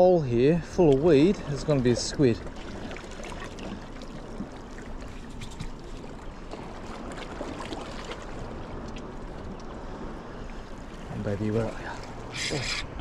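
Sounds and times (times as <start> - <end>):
water lapping against rocks: 0.6 - 13.0
small splashes: 0.8 - 9.8.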